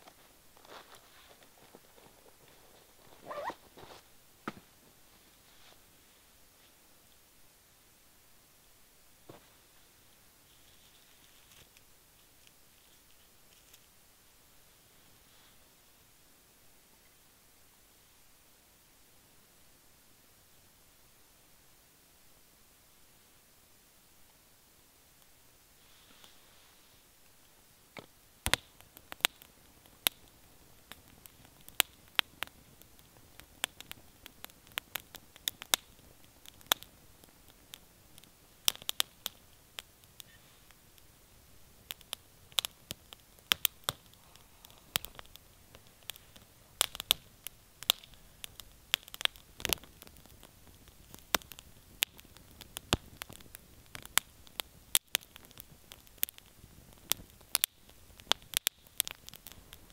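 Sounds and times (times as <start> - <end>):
campfire crackling and popping: 0.0 - 6.0, 9.2 - 14.8, 24.2 - 59.9
soft steady hiss: 0.0 - 59.9.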